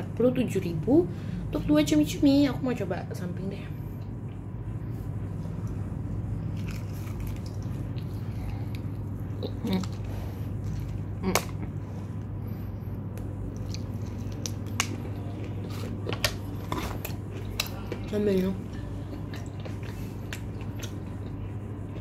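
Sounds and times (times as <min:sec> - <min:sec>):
steady low hum: 0:00.0 - 0:22.0
crunchy chewing: 0:04.3 - 0:22.0.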